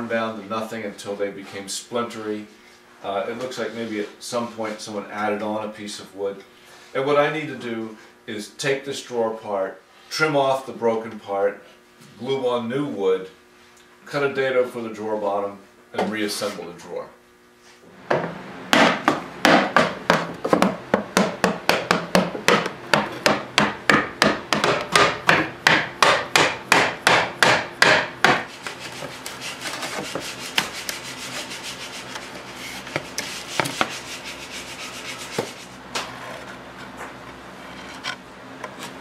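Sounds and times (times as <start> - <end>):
hand tool working wood: 18.8 - 39.0.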